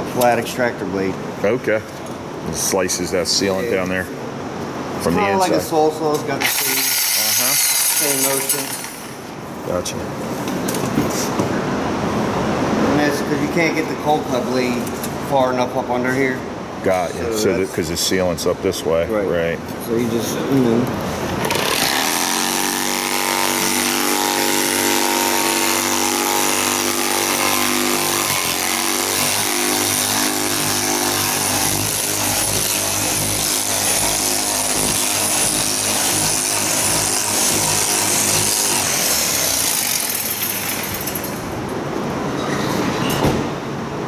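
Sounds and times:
power cutting tool sawing: 6.4s - 9.2s, 21.4s - 41.4s.

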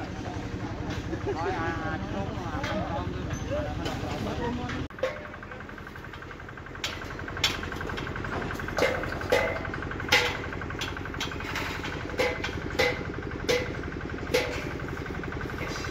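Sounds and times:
machine engine rattling: 0.0s - 15.9s
sharp ringing knocks: 8.5s - 14.9s.

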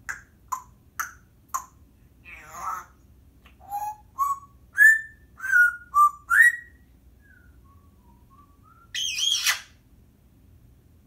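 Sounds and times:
parrot whistling: 3.6s - 9.8s
parrot harsh warbling call: 9.0s - 9.8s.

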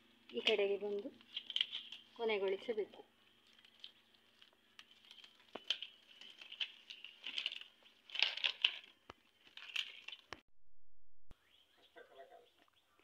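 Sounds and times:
palm leaves rustling and crackling: 0.0s - 10.4s.

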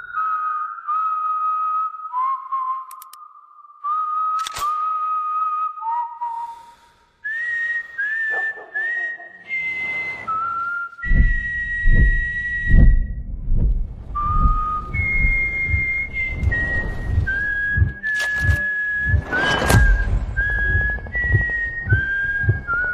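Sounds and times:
whistled tune: 0.0s - 13.3s, 14.1s - 22.9s
low thudding beat: 11.0s - 22.9s.

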